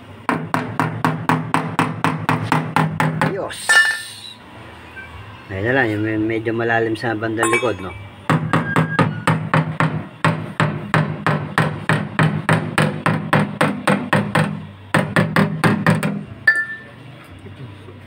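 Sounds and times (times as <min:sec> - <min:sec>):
hammer striking sheet metal: 0:07.4 - 0:16.2.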